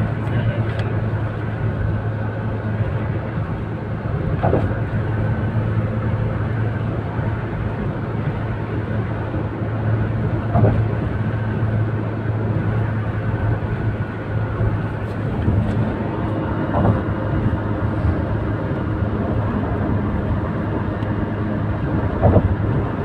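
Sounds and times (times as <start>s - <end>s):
car engine and tyres droning: 0.0s - 23.0s
brief thumps: 16.7s - 17.0s.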